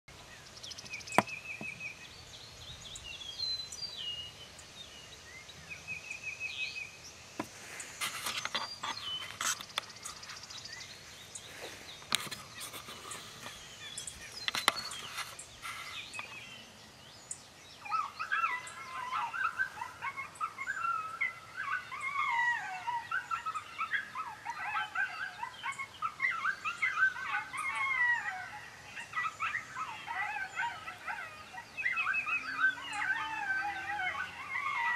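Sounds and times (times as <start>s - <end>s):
songbirds chirping: 0.1s - 34.9s
coyote pup howls and yips: 17.8s - 34.9s.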